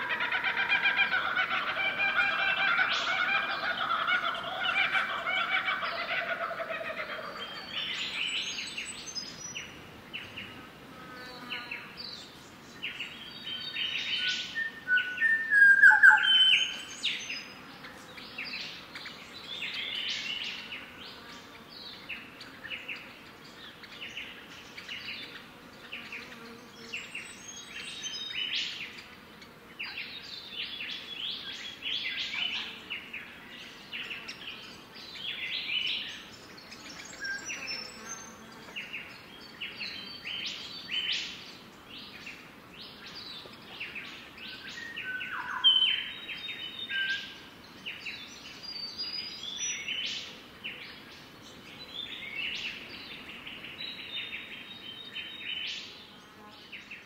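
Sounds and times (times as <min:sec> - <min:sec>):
birds chirping: 0:11.2 - 0:56.1.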